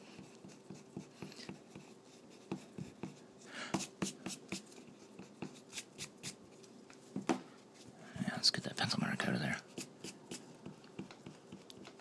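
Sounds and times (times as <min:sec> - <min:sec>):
eraser rubbing on paper: 0:03.8 - 0:06.4, 0:09.7 - 0:12.0.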